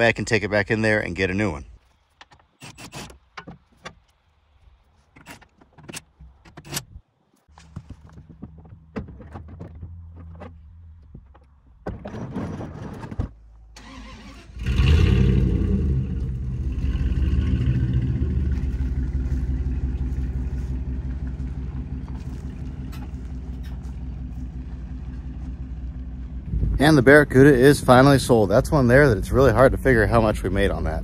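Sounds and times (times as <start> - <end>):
handling noise: 1.8 - 13.6, 17.2 - 26.8
vehicle engine running loudly: 14.7 - 30.5.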